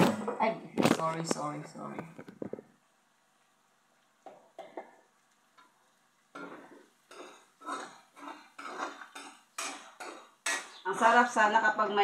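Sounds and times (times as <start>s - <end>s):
spoon scraping metal wok: 6.4s - 11.0s.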